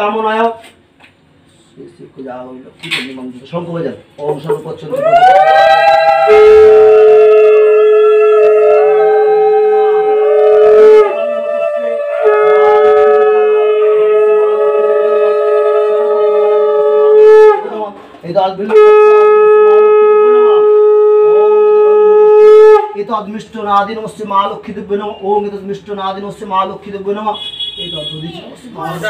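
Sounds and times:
conch shell blasts: 12.1s - 15.7s, 18.6s - 23.0s.

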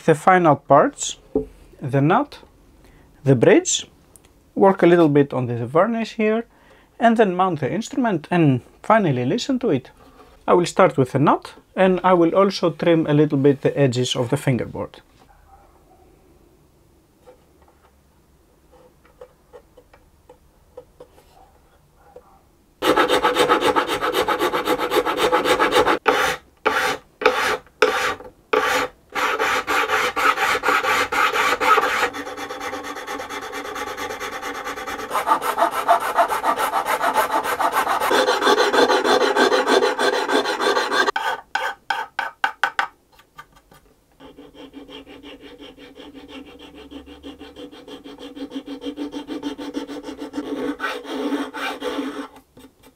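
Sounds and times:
hand file rasping on wood: 22.8s - 42.3s, 44.2s - 52.4s.

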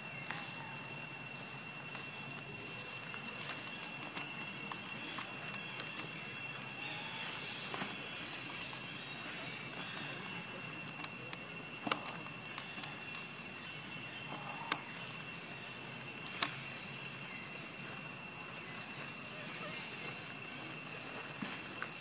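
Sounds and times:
insects droning: 0.0s - 22.0s
sharp clicks: 9.8s - 13.2s, 16.2s - 16.6s.

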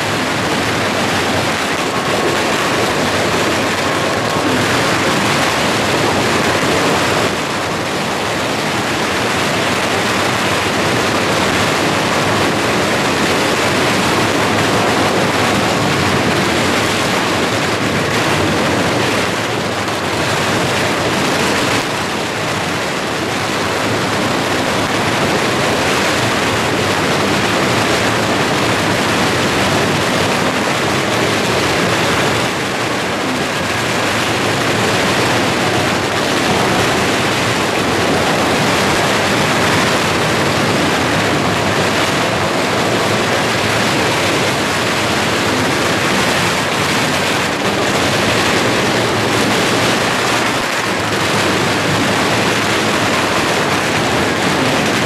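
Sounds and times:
firecrackers crackling: 0.0s - 55.0s.

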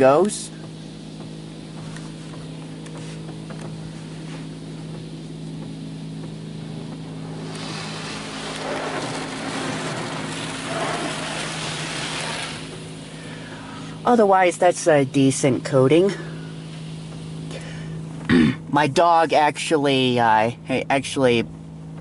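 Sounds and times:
low hum inside car: 0.0s - 22.0s
spray hissing over car: 7.1s - 14.0s.

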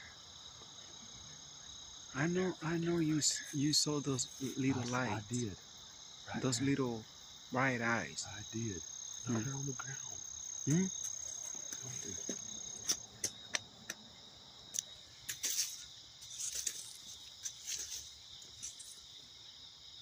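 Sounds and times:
night insects trilling: 0.0s - 20.0s.

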